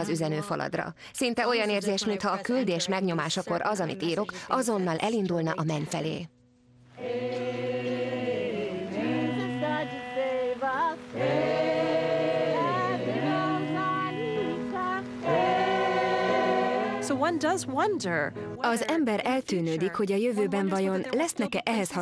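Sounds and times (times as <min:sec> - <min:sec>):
choir singing long notes: 0:07.0 - 0:17.4.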